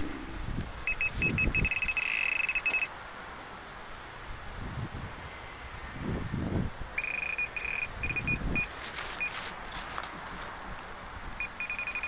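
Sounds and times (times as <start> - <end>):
fishing bite alarm beeping: 0.9 - 2.9, 7.0 - 9.3, 11.4 - 12.0.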